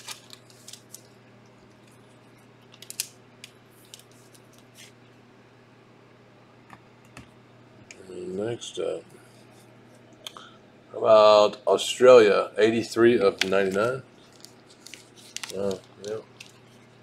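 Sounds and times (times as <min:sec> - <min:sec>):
steady low hum: 0:00.0 - 0:17.0
trading cards being handled: 0:02.7 - 0:05.0, 0:13.1 - 0:17.0.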